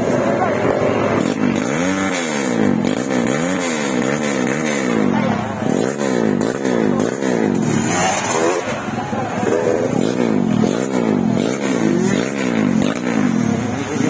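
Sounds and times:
dirt bike engines revving: 0:00.0 - 0:14.0.

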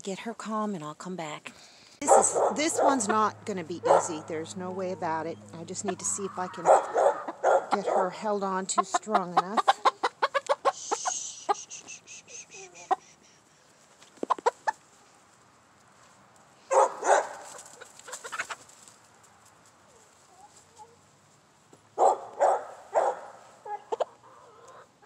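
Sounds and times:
chicken clucking: 0:04.8 - 0:07.8, 0:08.5 - 0:13.1, 0:14.1 - 0:14.8, 0:16.7 - 0:18.8, 0:23.0 - 0:25.0.

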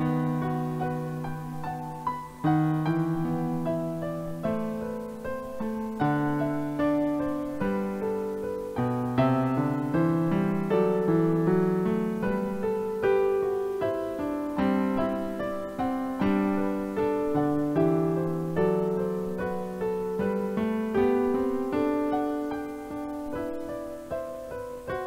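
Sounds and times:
slow piano music: 0:00.0 - 0:25.0.

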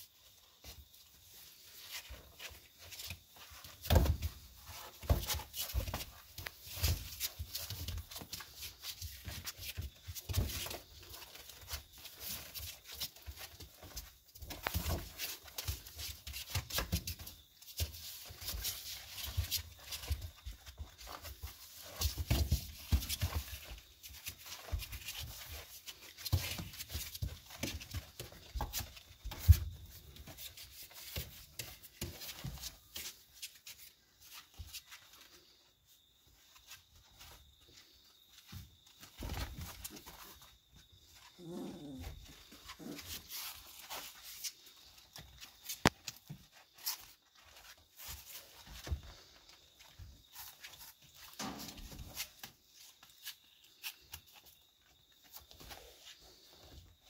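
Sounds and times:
puppy paws scrabbling: 0:00.1 - 0:57.0
puppy whining: 0:41.1 - 0:44.0.

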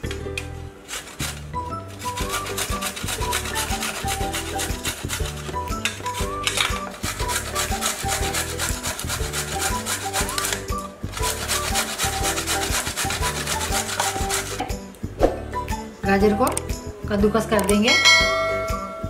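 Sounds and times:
background music: 0:00.0 - 0:19.0
carrots grated on metal grater: 0:00.8 - 0:14.7.

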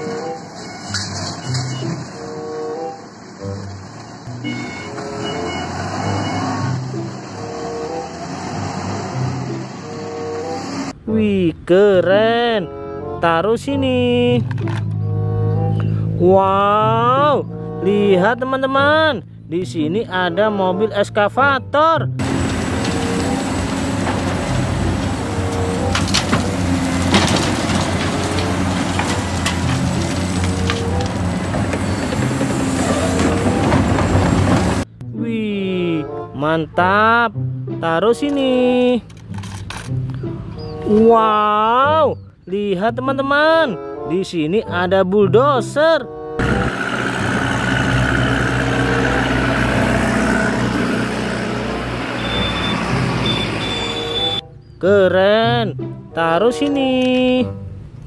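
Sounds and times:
excavator engine and hydraulics: 0:00.0 - 0:11.0, 0:22.2 - 0:35.0, 0:46.4 - 0:54.5
rock clanking in excavator bucket: 0:22.2 - 0:34.8.

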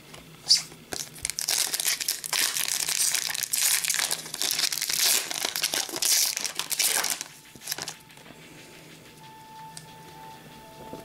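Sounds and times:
foil wrapper crinkling and tearing: 0:00.5 - 0:08.0.

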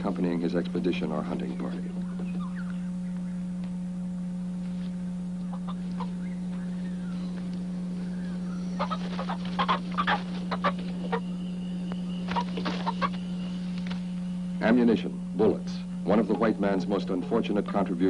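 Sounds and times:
steady low hum: 0:00.0 - 0:18.0
chicken squawking and clucking: 0:05.4 - 0:06.7, 0:08.1 - 0:11.4, 0:12.3 - 0:13.2.

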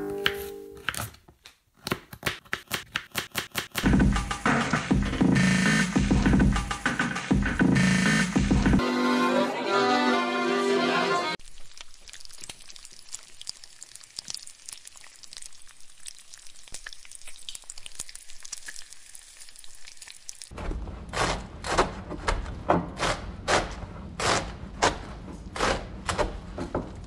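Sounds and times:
heavy thuds beat: 0:03.8 - 0:08.8
food sizzling in a pan: 0:11.4 - 0:20.5.

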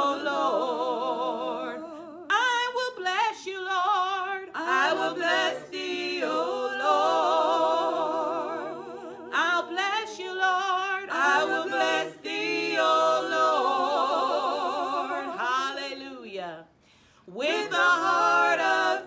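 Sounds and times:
women singing a cappella: 0:00.0 - 0:19.0
breaths between phrases: 0:16.7 - 0:17.3.

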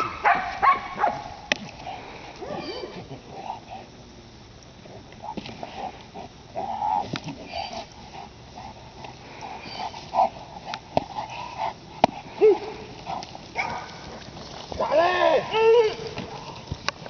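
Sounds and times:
dog breathing hard: 0:05.2 - 0:14.2.

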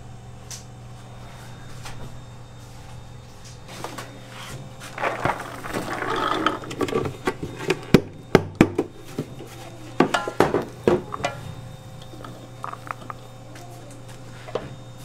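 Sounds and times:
container knocking against metal bowl: 0:10.0 - 0:11.5.

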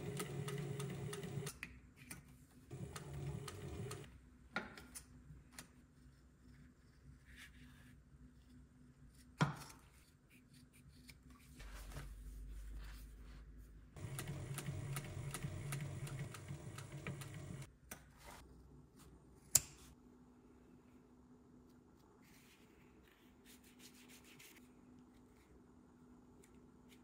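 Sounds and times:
sewing machine motor hum: 0:00.0 - 0:01.5, 0:02.7 - 0:04.1, 0:14.0 - 0:17.7
sewing machine needle stitching: 0:00.0 - 0:01.5, 0:02.7 - 0:04.1, 0:14.0 - 0:17.7.

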